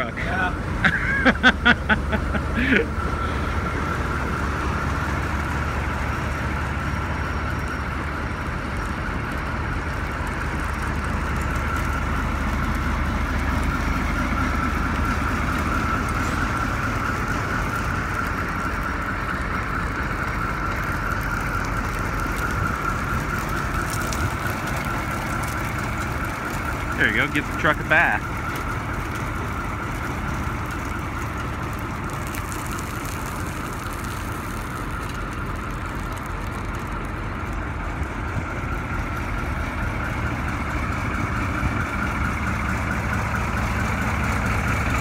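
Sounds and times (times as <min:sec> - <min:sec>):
diesel engine running: 0:00.0 - 0:45.0.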